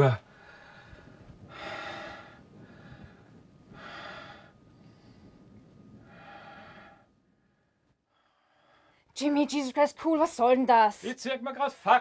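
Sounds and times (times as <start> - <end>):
man breathing heavily: 0.2 - 9.1.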